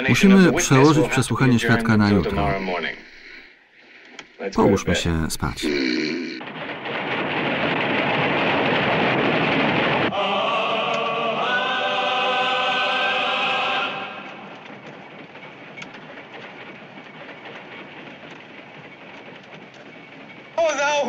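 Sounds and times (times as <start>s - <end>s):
train hissing: 0.0s - 5.8s, 6.4s - 21.0s
train running: 0.0s - 21.0s
faint clicks: 2.9s - 4.4s.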